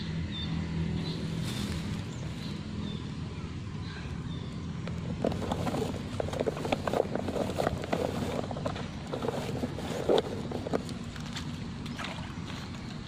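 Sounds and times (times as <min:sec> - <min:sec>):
crackling handling noises: 0:04.8 - 0:11.8.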